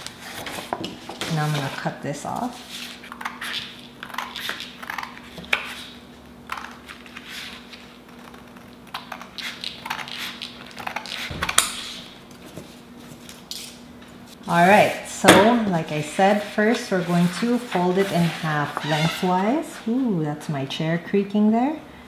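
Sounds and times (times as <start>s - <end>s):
scissors cutting thick paper: 6.5s - 11.3s.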